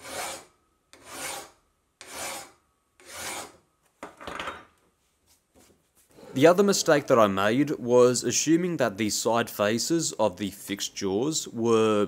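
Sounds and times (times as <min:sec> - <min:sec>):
hand file rasping on metal: 0:00.0 - 0:03.6.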